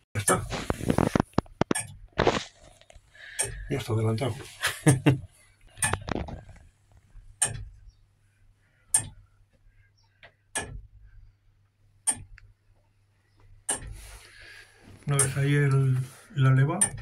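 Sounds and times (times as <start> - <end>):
tower clock ticking: 3.2 - 6.1, 7.3 - 7.9, 8.9 - 9.3, 10.0 - 12.5, 13.6 - 14.1, 15.1 - 17.0.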